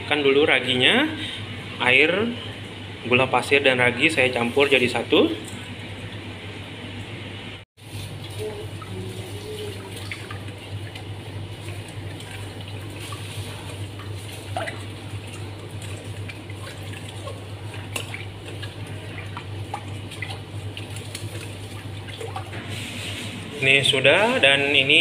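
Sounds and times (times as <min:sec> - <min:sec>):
steady low hum: 0:00.0 - 0:25.0
liquid swishing in a bowl: 0:07.8 - 0:23.8.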